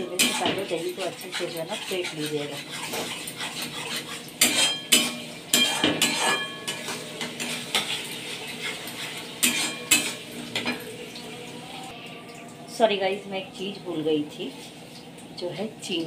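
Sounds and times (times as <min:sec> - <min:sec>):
metal spatula scraping a steel pan: 0:00.0 - 0:10.8
low sizzle of frying paste: 0:00.0 - 0:16.0.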